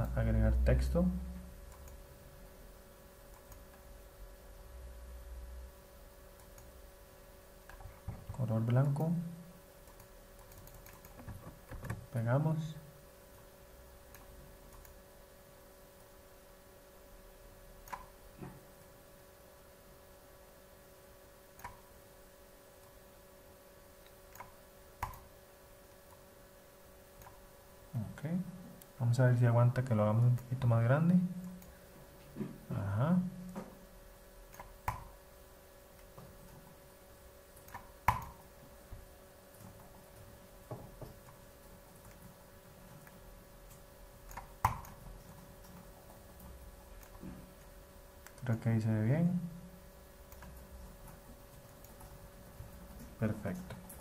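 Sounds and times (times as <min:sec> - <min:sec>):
low electrical hum: 0:00.0 - 0:54.0
computer mouse clicks: 0:01.7 - 0:02.0, 0:03.3 - 0:03.8, 0:06.4 - 0:06.7, 0:09.8 - 0:12.0, 0:14.1 - 0:15.0, 0:17.8 - 0:18.1, 0:21.6 - 0:21.9, 0:24.0 - 0:25.3, 0:27.2 - 0:27.4, 0:34.5 - 0:35.1, 0:37.6 - 0:38.4, 0:42.0 - 0:47.3, 0:50.3 - 0:53.9.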